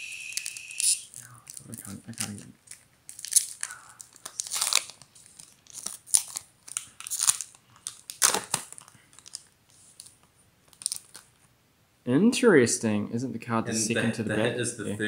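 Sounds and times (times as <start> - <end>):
foil wrapper tearing and crinkling: 0.3 - 11.3.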